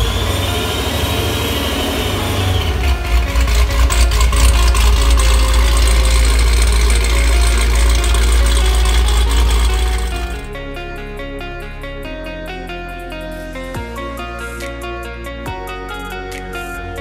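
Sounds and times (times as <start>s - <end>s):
car engine idling: 0.0s - 11.3s.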